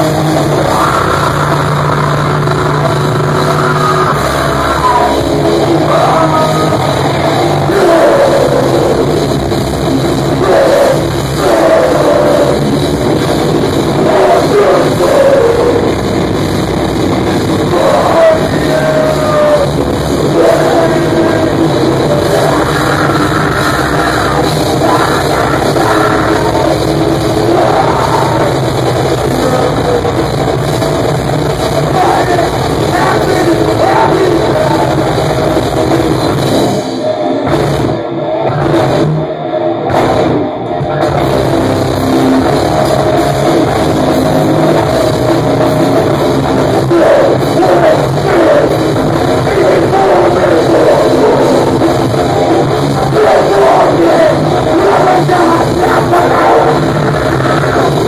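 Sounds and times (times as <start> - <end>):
person singing: 0.0 - 12.8, 13.8 - 16.1, 17.5 - 30.4, 31.8 - 37.3, 40.7 - 58.0
heavy metal band playing: 0.0 - 58.0.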